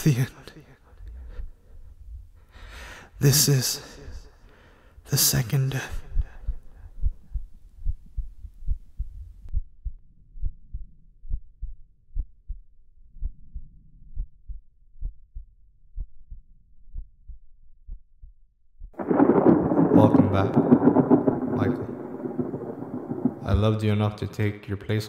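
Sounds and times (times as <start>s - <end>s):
heartbeat thumps: 6.0s - 19.9s, 22.2s - 23.6s.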